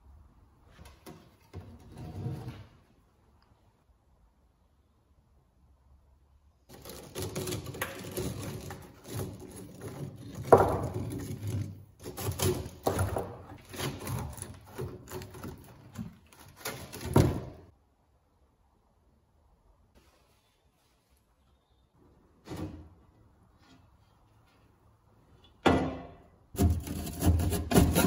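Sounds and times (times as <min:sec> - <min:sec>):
brick crunching and clattering: 0:06.7 - 0:17.7.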